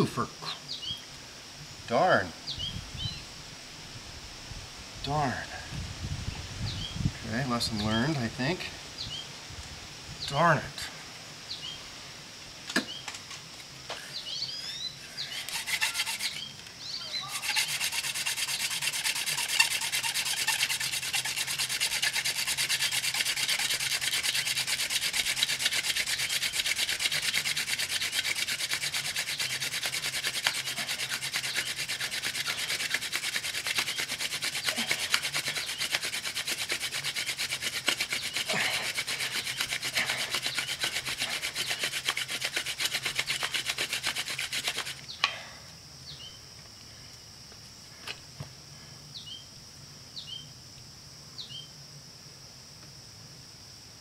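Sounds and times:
wooden spindle rubbing hiss: 13.9 - 45.2.

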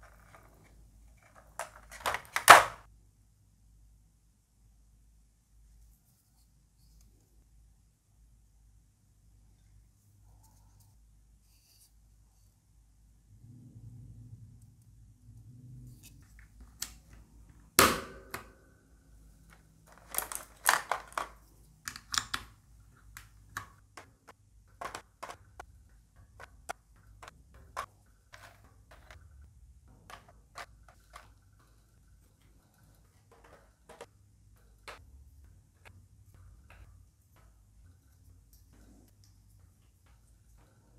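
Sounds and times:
plastic keycap clicks and taps: 20.1 - 22.5.

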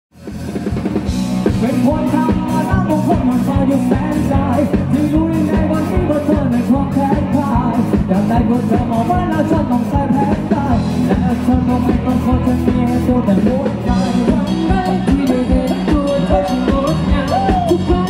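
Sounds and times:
live rock band playing: 0.1 - 18.0
person singing: 1.4 - 18.0.

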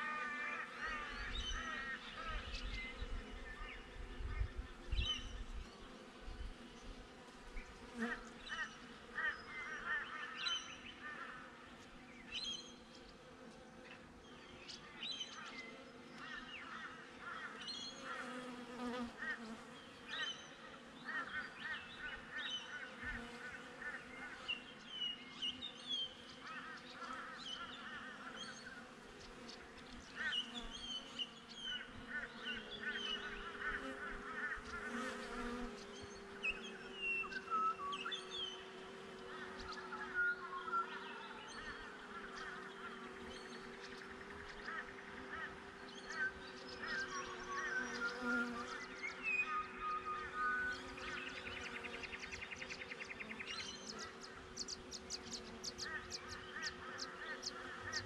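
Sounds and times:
bees buzzing: 0.0 - 12.0, 15.6 - 58.0.

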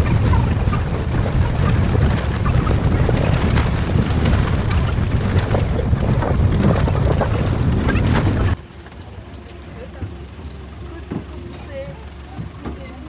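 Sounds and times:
wind buffeting microphone: 0.0 - 8.6
vehicle engine rumble: 0.0 - 13.0.

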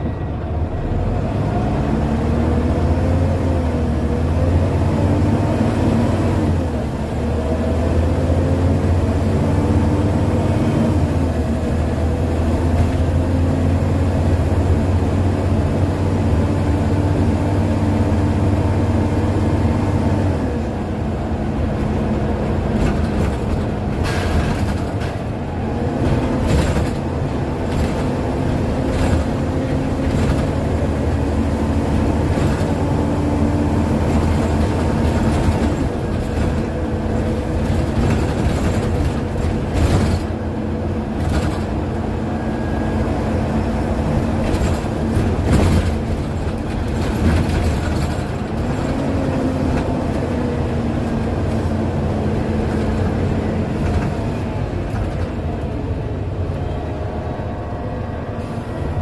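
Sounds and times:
bus diesel engine drone: 0.0 - 59.0
body rattles and knocks: 21.8 - 25.3, 44.2 - 50.4.

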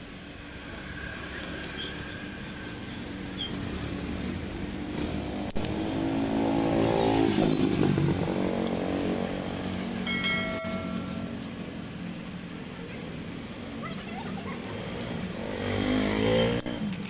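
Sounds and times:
vehicle engine passing by: 3.5 - 11.3, 14.4 - 17.0
short bell-like chime: 10.1 - 11.4.

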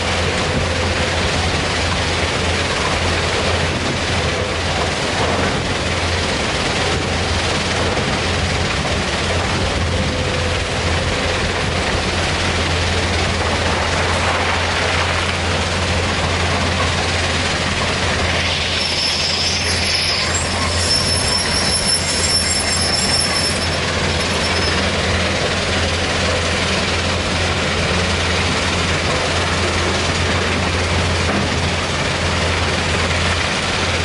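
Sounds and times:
excavator diesel engine: 0.0 - 34.0
stone crushing plant running: 0.0 - 34.0
faint high metallic squeal: 18.3 - 25.1.

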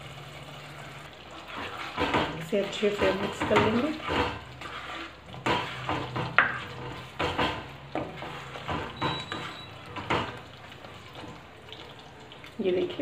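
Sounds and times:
gravy sizzling in oil: 0.0 - 13.0
spatula scraping a pan: 1.2 - 11.4.

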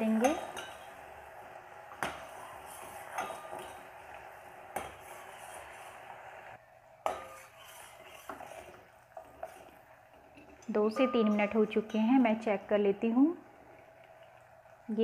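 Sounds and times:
boiling syrup bubbling: 0.0 - 15.0
ladle clinking against pan: 3.1 - 3.9.

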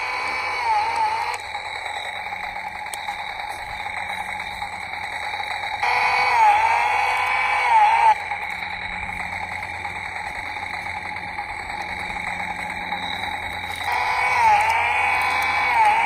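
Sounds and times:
electronic engine revving tone: 0.0 - 16.0
toy chainsaw buzzing rattle: 0.0 - 16.0.

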